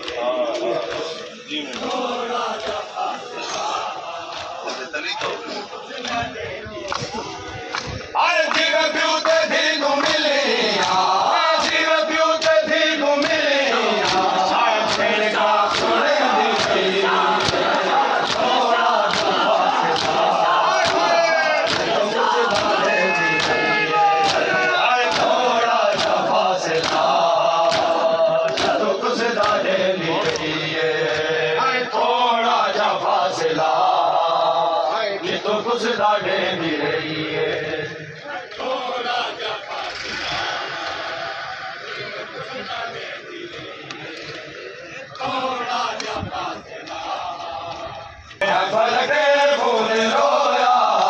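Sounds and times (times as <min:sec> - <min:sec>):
men chanting in unison: 0:00.0 - 0:51.0
hands slapping chests: 0:14.0 - 0:15.1, 0:17.4 - 0:18.5, 0:19.1 - 0:22.8, 0:25.1 - 0:28.8.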